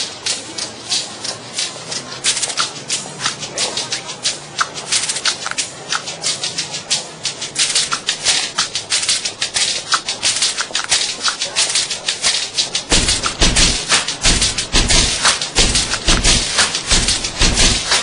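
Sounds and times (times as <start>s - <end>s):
tap shoes striking paving stones: 7.5s - 18.0s.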